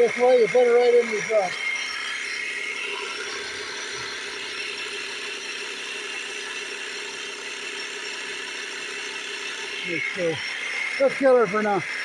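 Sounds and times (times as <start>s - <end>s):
air compressor pulsing: 0.0s - 12.0s.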